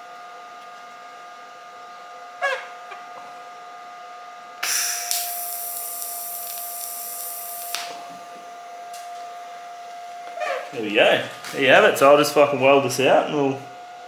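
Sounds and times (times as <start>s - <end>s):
faint steady whine: 3.0s - 14.0s
welding arc hissing: 4.6s - 8.3s.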